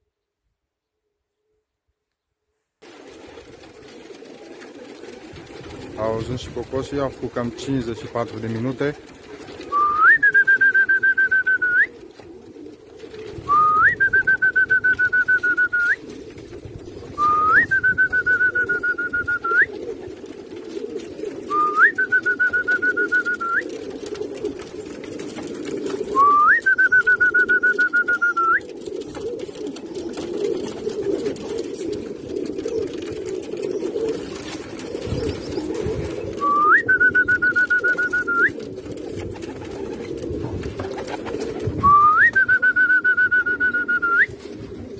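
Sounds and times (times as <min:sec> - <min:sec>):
pigeons cooing: 0:02.8 - 0:44.9
person whistling long notes: 0:09.7 - 0:11.9, 0:13.5 - 0:16.0, 0:17.2 - 0:19.7, 0:21.5 - 0:23.6, 0:26.2 - 0:28.6, 0:36.4 - 0:38.5, 0:41.8 - 0:44.4.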